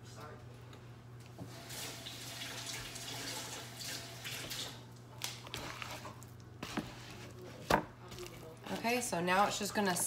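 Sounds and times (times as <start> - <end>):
water splashing from tap: 1.6 - 4.8
hands kneading sticky dough: 5.2 - 10.0.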